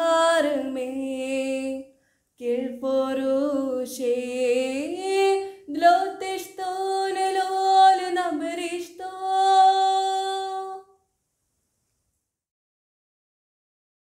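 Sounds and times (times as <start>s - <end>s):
girl singing a hymn solo: 0.0s - 10.9s.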